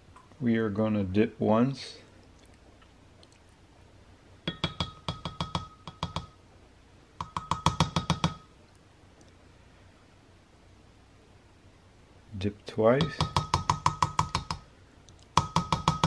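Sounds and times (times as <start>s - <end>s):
spoon tapping glass cup: 4.5s - 6.4s, 7.2s - 8.5s, 13.0s - 14.6s, 15.4s - 16.0s.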